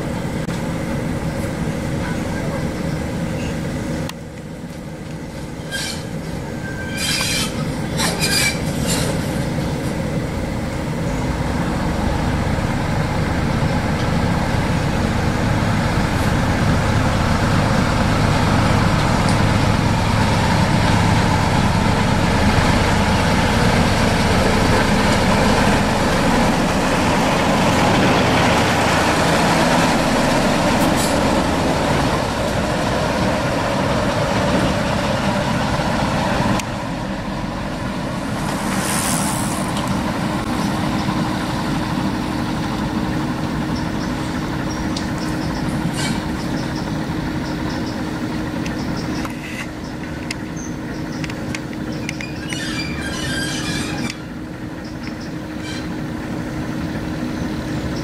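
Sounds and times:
train running rumble: 0.0s - 58.0s
train wheel squeals: 5.6s - 9.3s, 44.7s - 48.0s, 51.9s - 56.0s.

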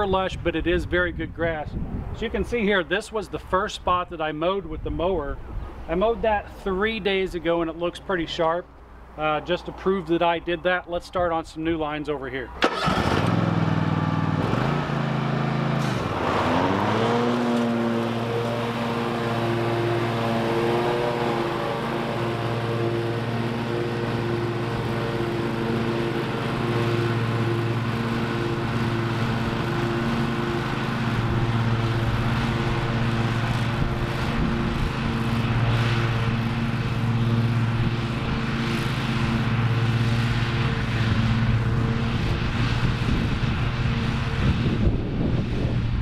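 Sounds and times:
gusts of wind noise: 0.0s - 2.4s, 31.0s - 36.3s, 40.9s - 46.0s
mower engine running: 12.6s - 46.0s.

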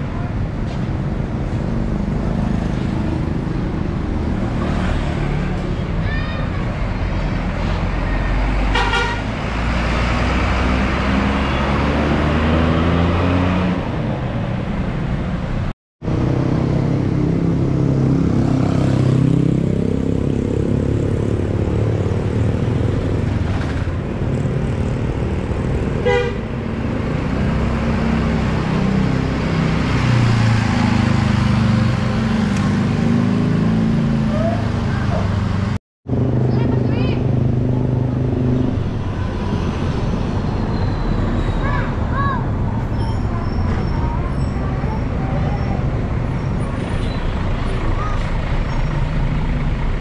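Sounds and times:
bus engines: 0.0s - 50.0s
road traffic: 0.0s - 50.0s.

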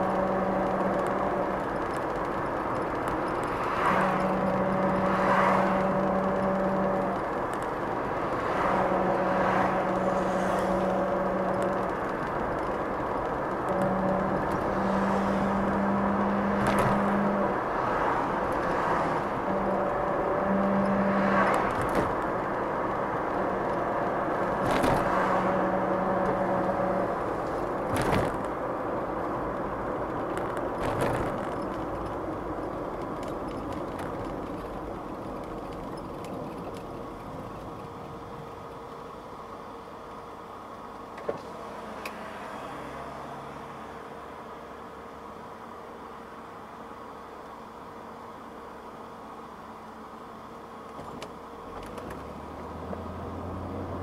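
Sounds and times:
car engine and tyre noise: 0.0s - 54.0s
rear differential howl: 0.0s - 54.0s
knocks from road bumps: 24.5s - 25.5s, 27.8s - 28.6s.

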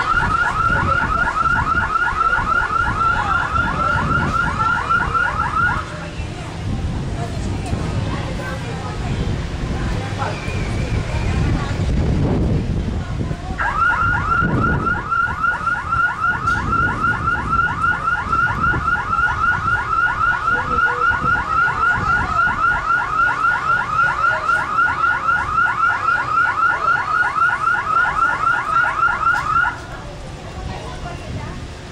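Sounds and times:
car alarm chirping: 0.0s - 5.8s, 13.6s - 29.8s.

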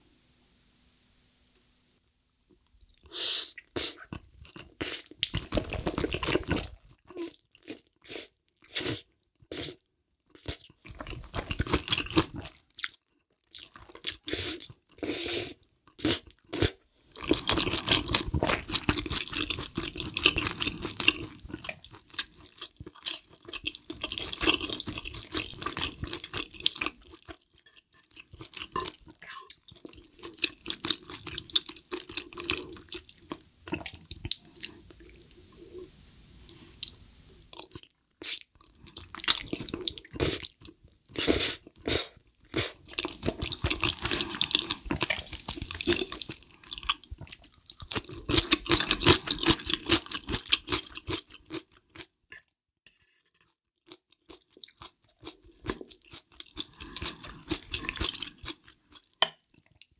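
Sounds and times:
wet mouth noises eating noodles: 2.8s - 12.5s
chewing: 10.3s - 15.0s, 16.3s - 35.4s, 36.5s - 52.1s, 53.9s - 59.9s.

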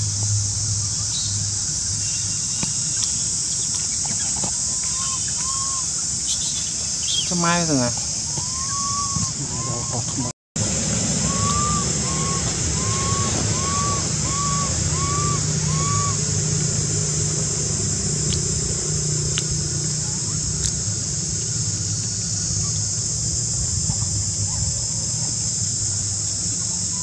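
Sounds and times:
high hiss: 0.0s - 27.0s
short rise-and-fall calls: 4.8s - 17.3s.

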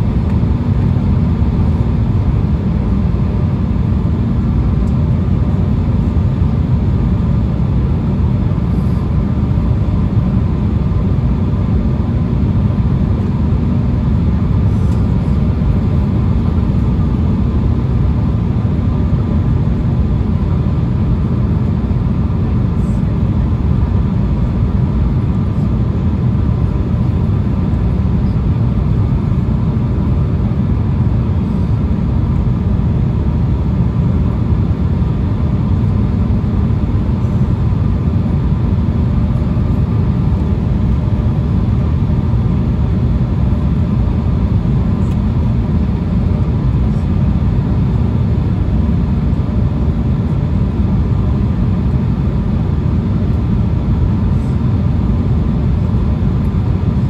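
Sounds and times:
deep rumble of airflow and engines: 0.0s - 57.0s
faint steady hum: 0.0s - 57.0s.

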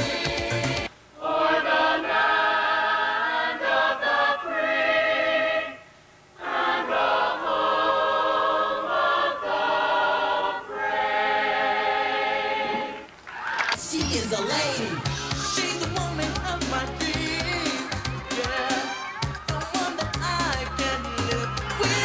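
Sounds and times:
choir singing unaccompanied: 0.0s - 5.8s, 6.4s - 13.1s, 14.8s - 22.0s.

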